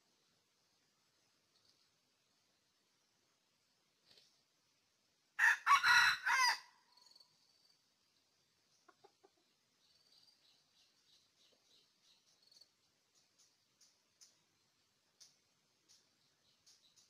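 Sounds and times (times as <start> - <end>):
rooster crowing: 5.4 - 6.8
faint clucks: 8.7 - 9.6.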